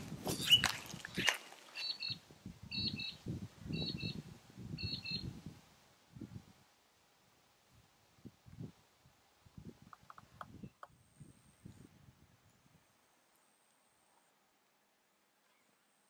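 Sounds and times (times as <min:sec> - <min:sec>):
footsteps through dry grass: 0:00.0 - 0:02.0.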